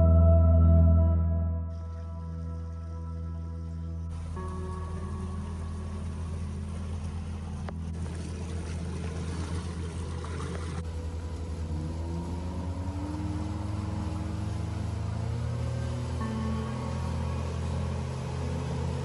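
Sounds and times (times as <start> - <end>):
outboard motor running: 1.8 - 19.0
water rushing past hull: 4.1 - 19.0.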